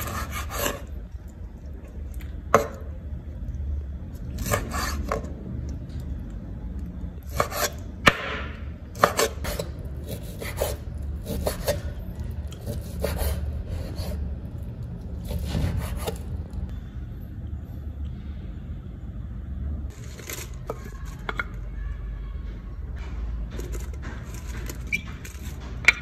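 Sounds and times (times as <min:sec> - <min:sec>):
knife slicing meat: 0:09.0 - 0:14.2, 0:15.2 - 0:16.2
low hum: 0:13.4 - 0:26.0.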